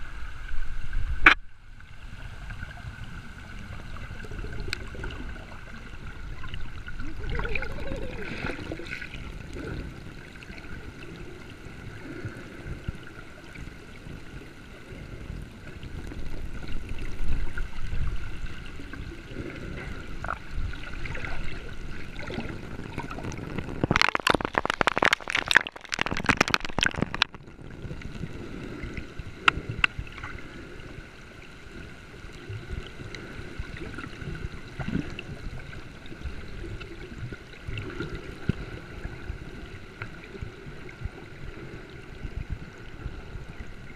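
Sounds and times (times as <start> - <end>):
faint steady hum: 0.0 - 43.9
water gurgling and sloshing: 0.0 - 43.9
splashing crackle: 19.8 - 30.4.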